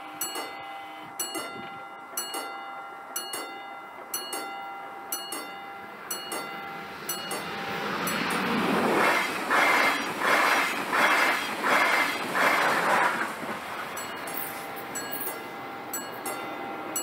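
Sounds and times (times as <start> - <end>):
bell ringing: 0.0 - 8.6, 14.0 - 17.0
approaching train: 0.0 - 17.0.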